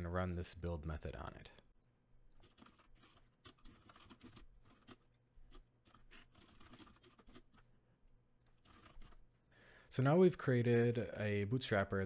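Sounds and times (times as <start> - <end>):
faint keyboard typing: 2.3 - 7.8, 8.4 - 9.6.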